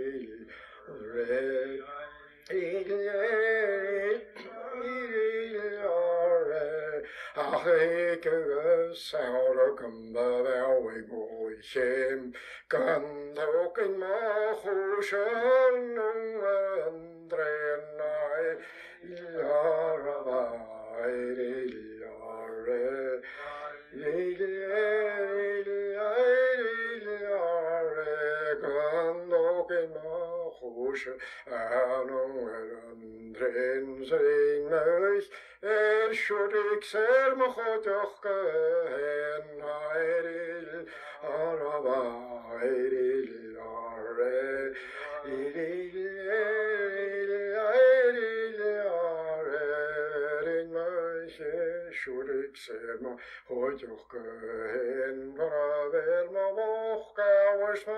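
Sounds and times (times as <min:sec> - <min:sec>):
person breathing: 0:00.4 - 0:00.9, 0:07.0 - 0:07.4, 0:12.3 - 0:12.7, 0:18.6 - 0:19.0, 0:23.2 - 0:23.6, 0:31.2 - 0:31.5, 0:35.3 - 0:35.6, 0:40.8 - 0:41.2, 0:44.7 - 0:45.2, 0:53.2 - 0:53.5.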